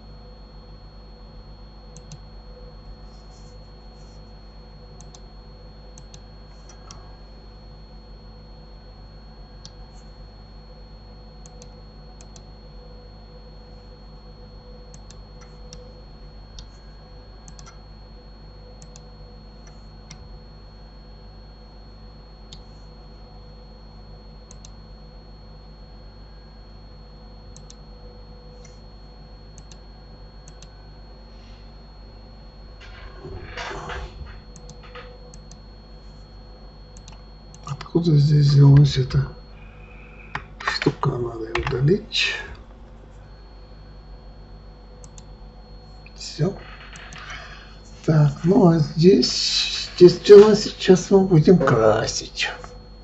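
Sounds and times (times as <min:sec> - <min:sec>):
faint high whine: 0:00.0 - 0:53.0
low electrical hum: 0:00.0 - 0:53.0
mouse and keyboard clicks: 0:46.6 - 0:47.4.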